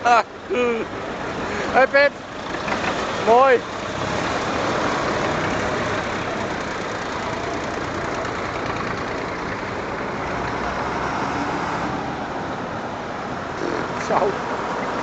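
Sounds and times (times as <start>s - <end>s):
large tractor approaching: 0.3s - 12.7s
old tractor engine passing: 1.3s - 11.3s.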